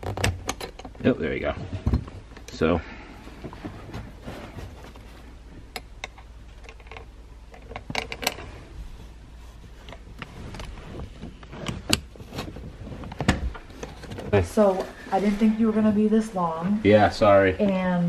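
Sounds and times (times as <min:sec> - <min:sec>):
seat-belt buckle clicks and knocks: 0:09.8 - 0:13.6.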